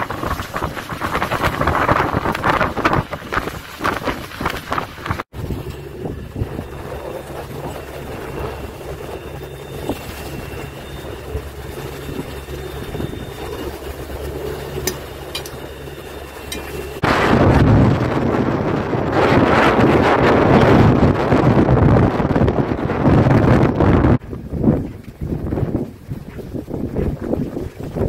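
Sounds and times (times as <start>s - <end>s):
low hum: 0.0s - 28.0s
wind buffeting microphone: 0.0s - 28.0s
diesel engine running: 5.3s - 17.9s.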